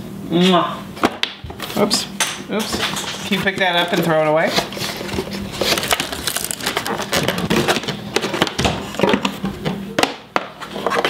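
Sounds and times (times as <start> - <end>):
packaging rustling and crackling: 3.4 - 9.4.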